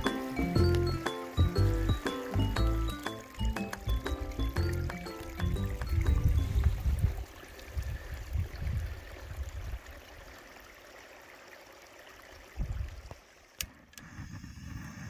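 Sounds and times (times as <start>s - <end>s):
outdoor hiss: 0.0s - 5.7s.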